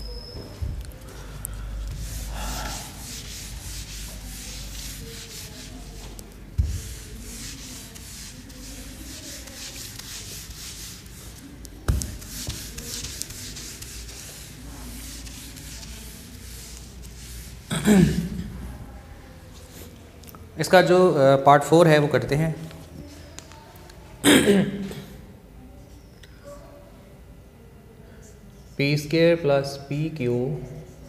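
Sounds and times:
duster rubbing on whiteboard: 0:01.8 - 0:17.7.

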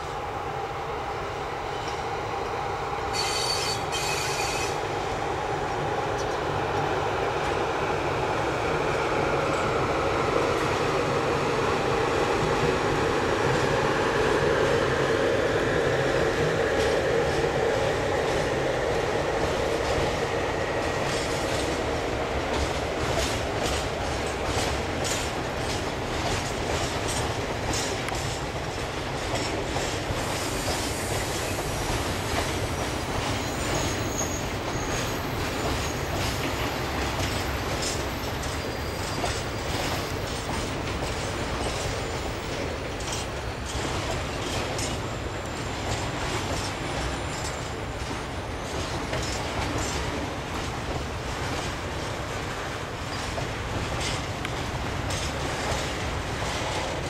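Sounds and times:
freight train rumble: 0:00.0 - 0:57.0
wheels clicking over rail joints: 0:20.8 - 0:57.0.

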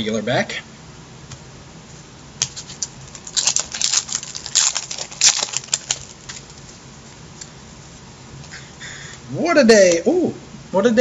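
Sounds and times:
faint room hum: 0:00.0 - 0:11.0
trading card wrapper crinkling: 0:02.4 - 0:06.8.

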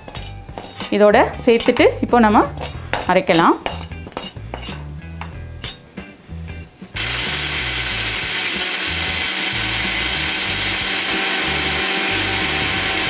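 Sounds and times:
mixer grinder running: 0:07.0 - 0:13.0.

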